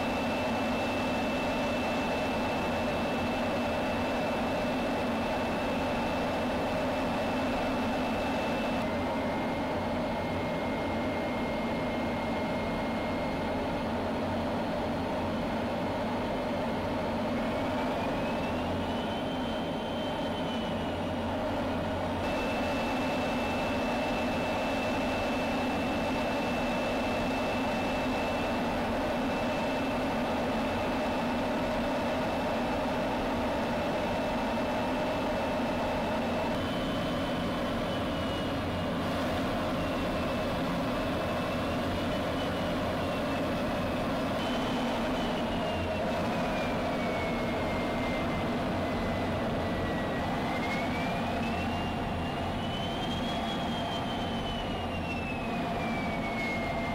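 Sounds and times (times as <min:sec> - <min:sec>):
thin high whine: 0:22.2 - 0:56.9.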